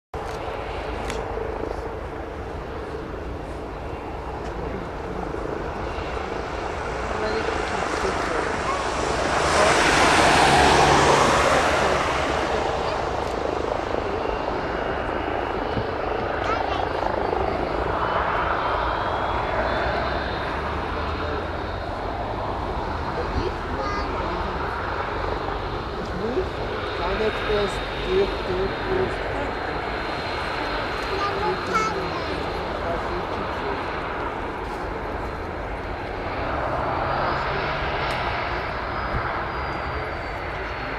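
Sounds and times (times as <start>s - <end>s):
jet engines rushing: 0.2s - 40.9s
faint high whine: 37.0s - 40.9s.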